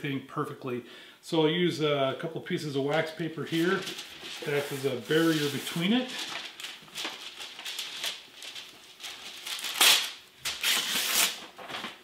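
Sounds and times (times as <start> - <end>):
wax paper rustling and crackling: 2.9 - 12.0.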